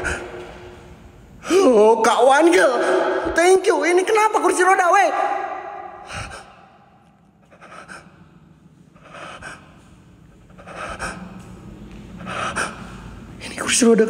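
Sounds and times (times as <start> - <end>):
man breathing heavily: 0.0 - 1.6, 5.9 - 13.4
faint low hum: 0.0 - 14.0.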